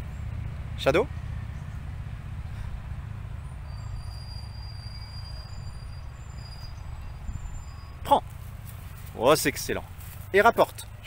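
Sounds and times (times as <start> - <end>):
distant traffic rumble: 0.0 - 11.0
faint high squeal: 3.6 - 8.2.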